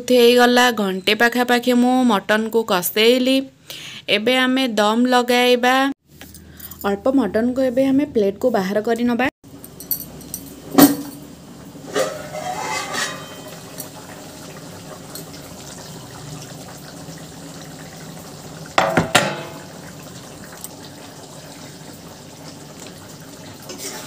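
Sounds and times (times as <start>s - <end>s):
water boiling: 9.5s - 24.0s
metal kitchenware clinking: 9.6s - 11.3s, 11.9s - 14.0s, 18.8s - 19.8s
ringing metal scrape: 11.9s - 13.8s.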